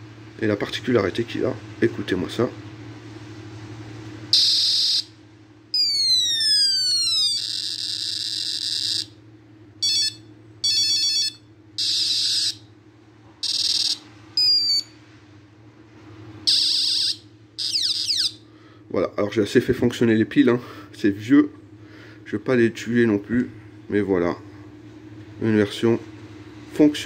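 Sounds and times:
toy electronic sound effects: 4.4 - 5.1, 5.8 - 9.1, 9.8 - 12.6, 13.4 - 14.9, 16.5 - 18.4.

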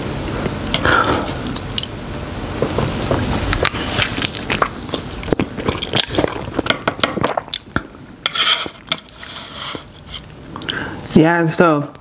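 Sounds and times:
noodles slurped and chewed: 2.6 - 7.7.

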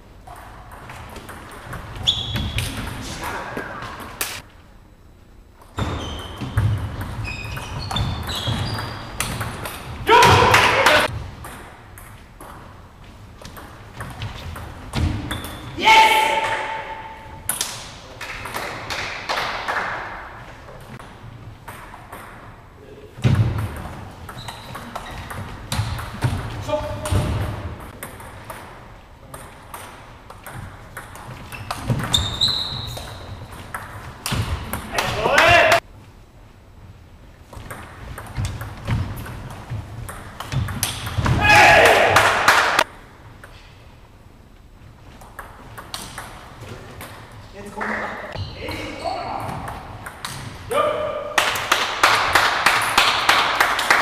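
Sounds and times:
shoes squeaking on wooden floor: 5.8 - 9.2, 24.3 - 25.6, 31.3 - 33.4.

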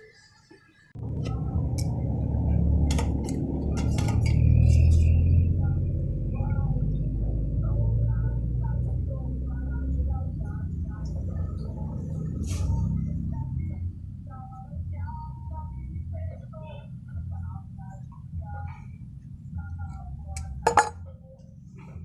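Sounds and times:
loud low rumble: 1.0 - 15.1
metal tool clinking on steel mug: 20.6 - 21.0.

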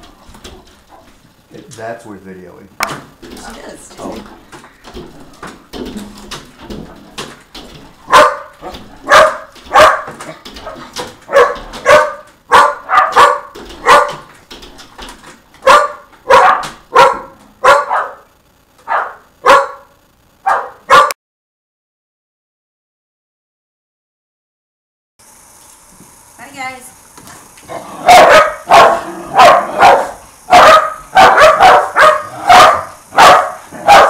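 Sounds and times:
dogs barking: 8.0 - 14.3, 15.6 - 21.2, 27.7 - 34.0.

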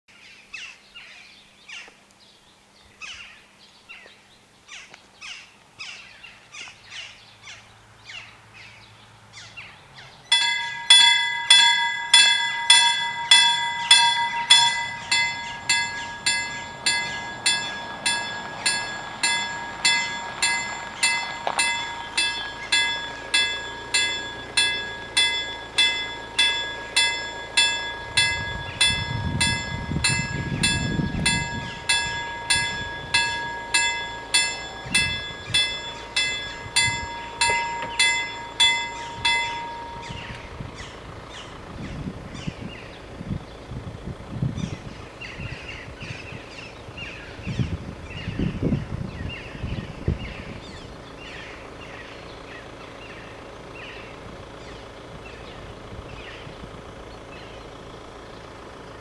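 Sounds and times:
freight train rumble: 10.2 - 59.0
level crossing bells ringing: 10.3 - 41.6.

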